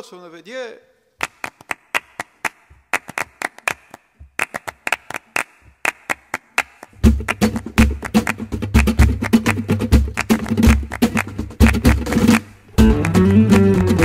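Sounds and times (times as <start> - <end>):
rhythmic hand clapping: 1.2 - 14.0
bass and drum: 9.9 - 14.0.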